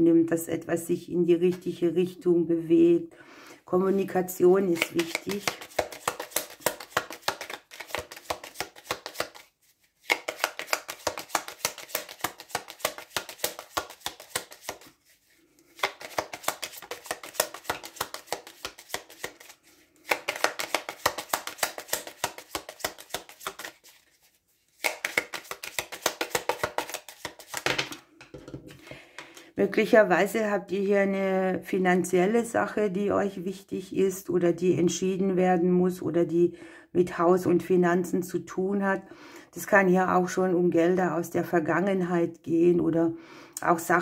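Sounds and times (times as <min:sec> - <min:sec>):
cards shuffled by hand: 0:04.6 - 0:29.0.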